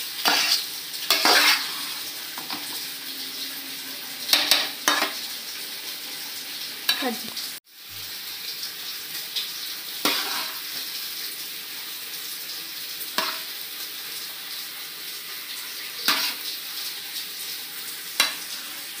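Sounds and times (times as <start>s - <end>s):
rice sizzling in a wok: 0.0s - 19.0s.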